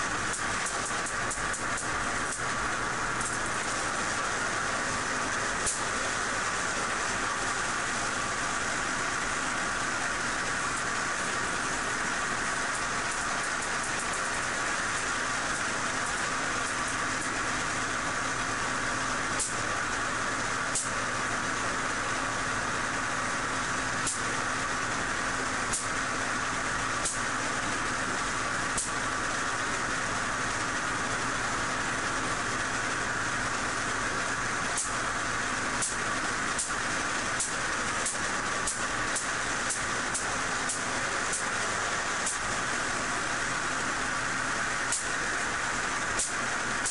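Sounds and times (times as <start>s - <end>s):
motor-driven belt whirring: 0.0s - 46.9s
spark snaps: 0.2s - 17.6s, 19.3s - 19.9s, 20.5s - 21.0s, 24.0s - 24.4s, 25.6s - 26.0s, 27.0s - 27.4s, 28.7s - 29.1s, 34.7s - 46.9s.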